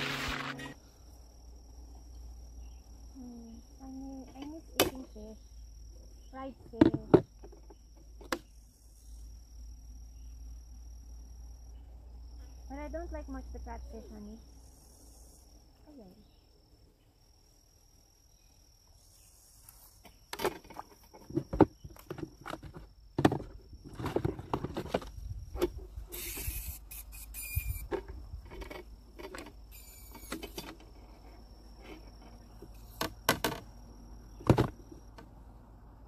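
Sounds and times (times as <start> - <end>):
high insect drone: 0.0 - 36.0
knocks and rustles: 20.0 - 26.5, 34.4 - 35.3
short hissing bursts: 26.1 - 27.8.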